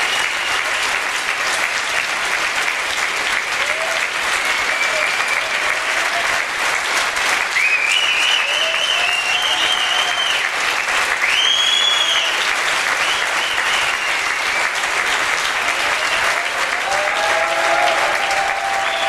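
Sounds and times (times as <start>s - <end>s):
audience applauding and cheering: 0.0s - 19.0s
long whistles: 7.6s - 10.4s, 11.2s - 12.4s, 13.0s - 14.7s.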